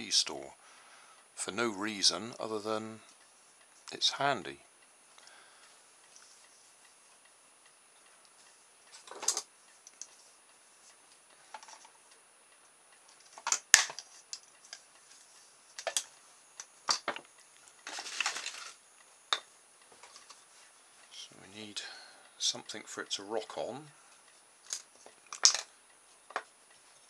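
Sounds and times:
handling rustle: 17.7s - 18.8s.

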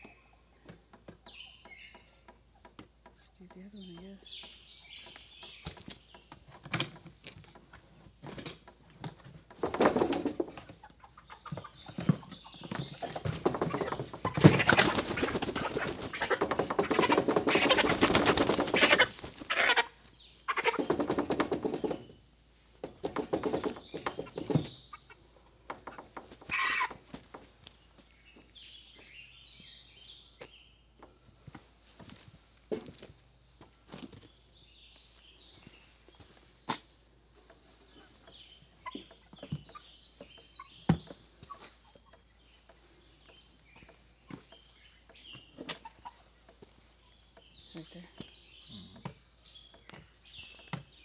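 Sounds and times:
chicken calls: 8.6s - 34.3s, 34.9s - 50.9s
chicken flapping wings: 13.0s - 19.9s, 20.5s - 22.0s.

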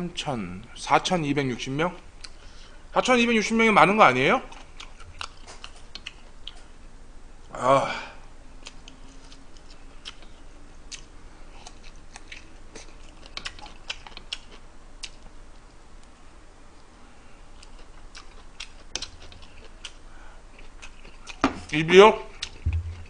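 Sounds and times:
chewing mouth sounds: 4.5s - 6.7s, 8.6s - 15.3s, 17.6s - 21.5s, 22.3s - 23.0s.

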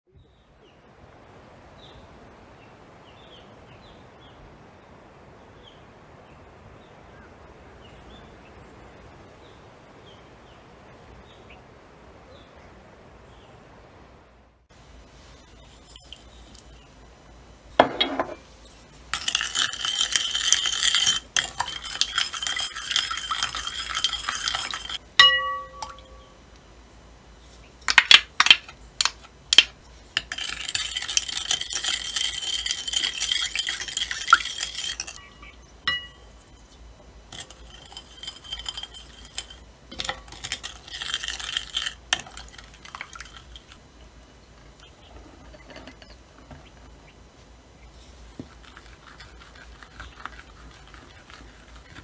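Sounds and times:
spoon stirring in glass bowl: 19.1s - 26.3s, 29.6s - 43.8s, 48.4s - 52.0s
spoon clinking against glass: 19.2s - 26.3s, 30.3s - 36.3s.

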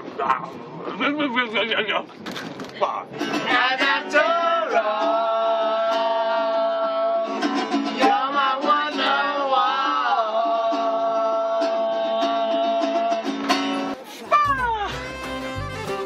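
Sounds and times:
man and woman singing: 3.2s - 14.0s
acoustic guitar strumming: 3.2s - 16.0s.

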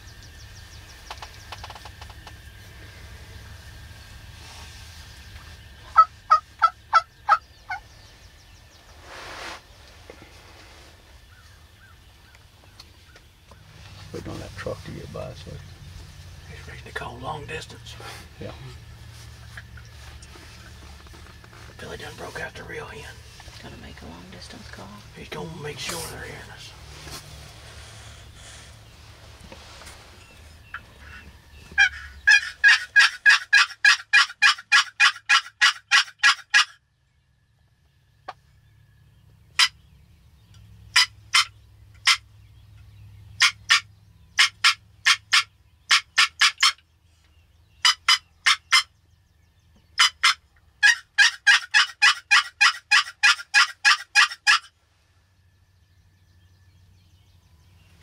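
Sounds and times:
turkey call yelps: 5.9s - 7.8s, 30.7s - 36.8s, 39.6s - 39.8s, 40.9s - 42.3s, 43.4s - 46.8s, 47.8s - 48.9s, 50.0s - 54.8s.

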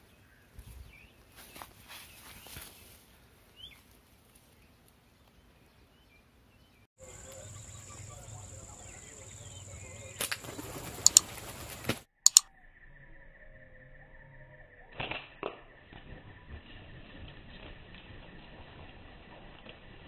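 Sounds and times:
bird chirp: 0.0s - 15.0s
birds twittering: 4.6s - 15.0s
sharp snaps: 10.2s - 11.3s, 12.1s - 12.5s.

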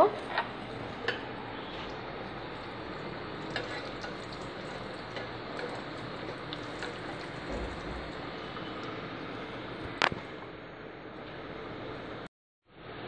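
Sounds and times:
deep-frying sizzle: 0.0s - 10.5s.

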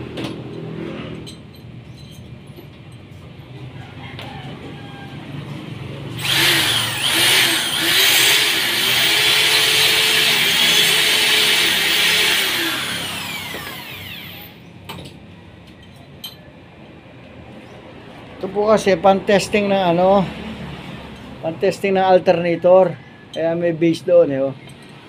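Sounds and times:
electric drill motor whine: 6.2s - 14.7s.

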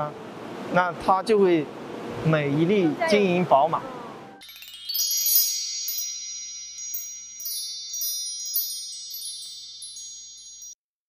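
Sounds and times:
high chimes ringing: 4.3s - 10.8s.

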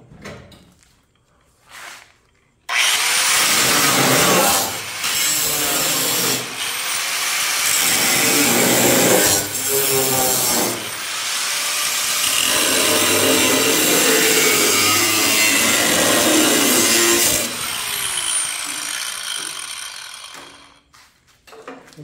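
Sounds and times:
grinder winding down whine: 2.7s - 7.6s, 9.2s - 20.9s
angle grinder cutting steel: 2.7s - 20.9s.

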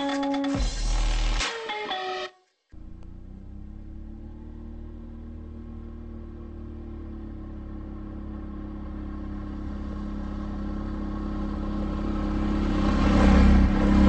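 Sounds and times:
quad engine running: 2.8s - 14.0s.

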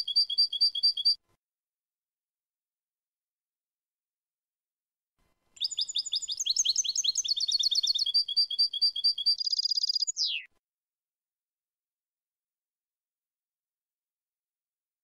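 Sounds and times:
goldfinch singing: 5.6s - 10.5s.

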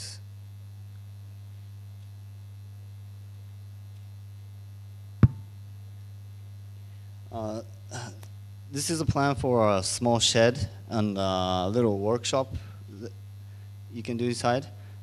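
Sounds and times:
electrical mains hum: 0.0s - 15.0s
sharp click: 5.2s - 5.5s.

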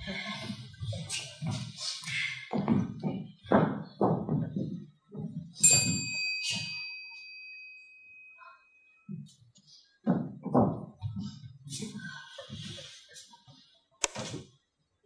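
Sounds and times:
small bell ringing: 5.6s - 9.1s.

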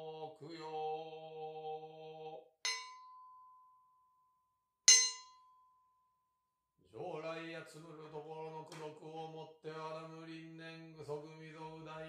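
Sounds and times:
man chanting: 0.0s - 2.4s, 6.9s - 12.0s
bowl bell ringing: 2.7s - 3.6s, 4.9s - 5.6s.

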